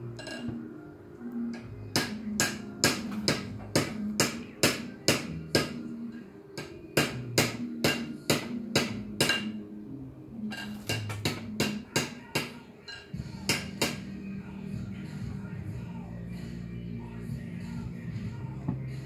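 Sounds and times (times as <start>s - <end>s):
music with percussive beat: 10.7s - 12.2s.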